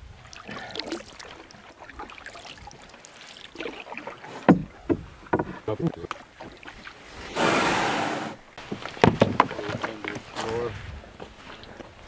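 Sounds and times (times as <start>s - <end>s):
water splashes and drips: 0.0s - 7.3s, 8.5s - 12.0s
paddle dipping in water: 0.0s - 12.0s.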